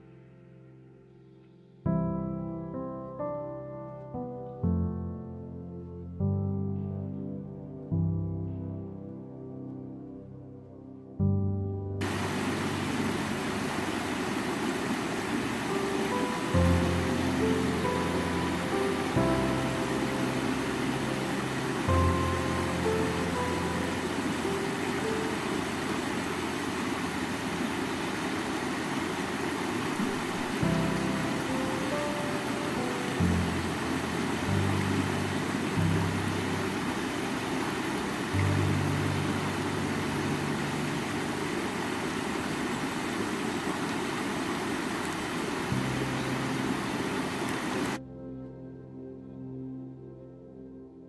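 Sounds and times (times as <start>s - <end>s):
soft music notes: 0.0s - 42.7s, 45.0s - 51.0s
river rushing over rocks: 12.0s - 48.0s
stream running over stones: 12.0s - 48.0s.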